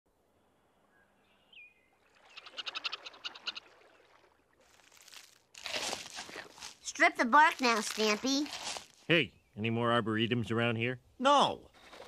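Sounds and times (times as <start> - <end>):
rapid chattering animal call: 2.3 - 3.6.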